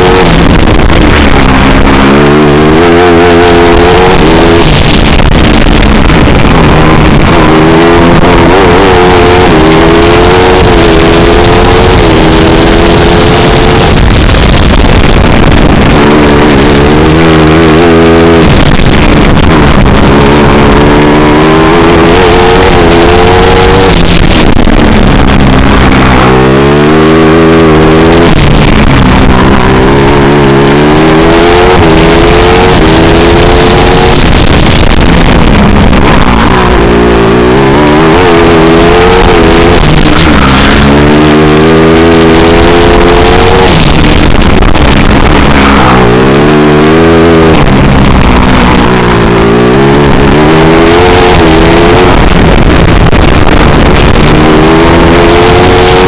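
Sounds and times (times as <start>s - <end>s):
kart engine revving: 0.0s - 56.0s.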